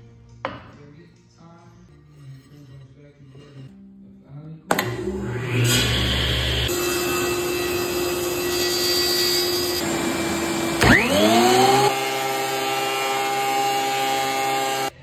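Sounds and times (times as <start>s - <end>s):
power saw running: 4.7s - 15.0s
thickness planer motor whine: 4.7s - 15.0s.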